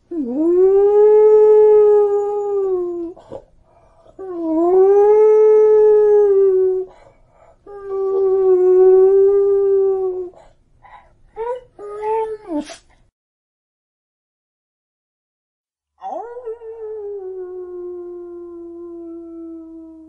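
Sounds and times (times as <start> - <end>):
dog howling: 16.0 - 20.0.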